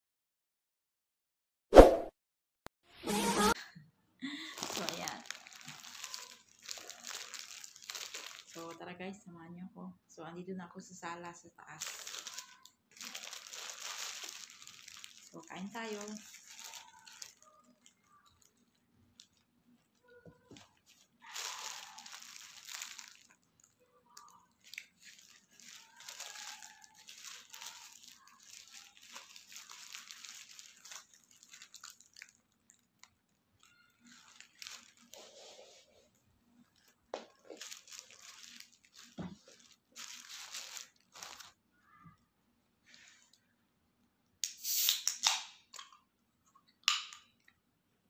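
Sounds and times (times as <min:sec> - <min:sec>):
paper wrapper crinkling and tearing: 0:04.3 - 0:08.8, 0:11.1 - 0:41.6.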